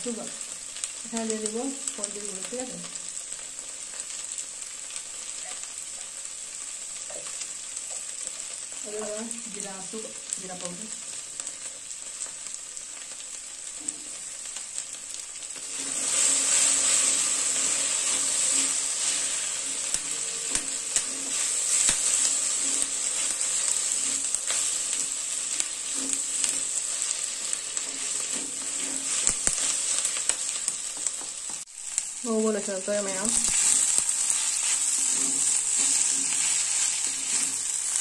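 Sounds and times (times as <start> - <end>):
okra sizzling in a pan: 0.0 - 38.0
spatula scraping a pan: 15.6 - 31.2, 33.4 - 38.0.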